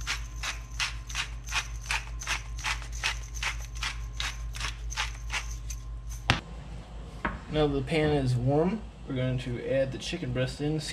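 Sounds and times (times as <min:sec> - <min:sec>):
pepper grinder crunching peppercorns: 0:00.0 - 0:06.3.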